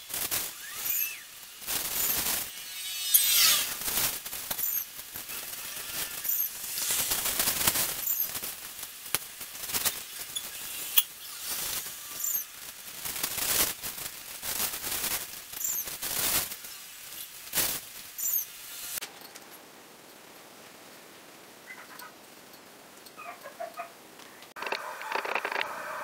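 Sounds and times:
artificial branches rustling: 0:00.0 - 0:26.0
plastic packaging rustling: 0:03.6 - 0:10.6, 0:11.5 - 0:18.0.

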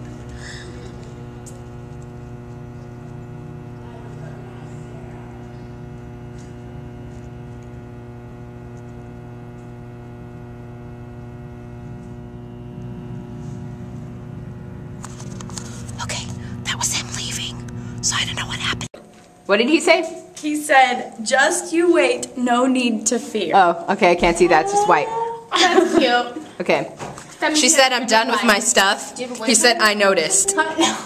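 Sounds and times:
electrical mains hum: 0:00.0 - 0:31.0.

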